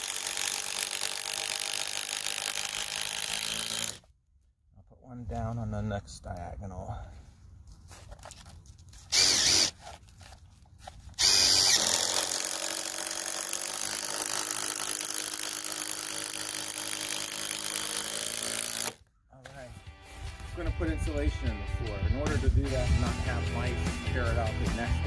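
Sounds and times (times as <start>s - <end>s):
cordless drill driving screw into wood: 0.0s - 4.1s, 9.1s - 9.8s, 11.1s - 19.0s.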